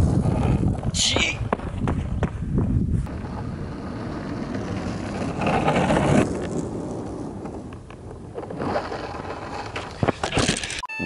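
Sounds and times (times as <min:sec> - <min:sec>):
longboard wheels rolling on asphalt: 0:00.0 - 0:10.8.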